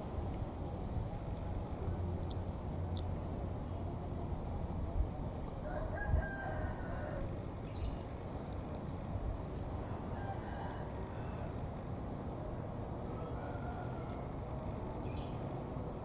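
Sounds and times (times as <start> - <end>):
low outdoor rumble: 0.0 - 16.0
rooster crowing: 5.6 - 7.3, 9.8 - 11.6, 13.1 - 14.4.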